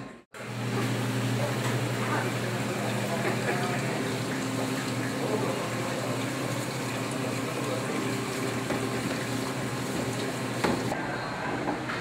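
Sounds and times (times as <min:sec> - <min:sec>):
tap water running into sink: 0:00.7 - 0:10.9.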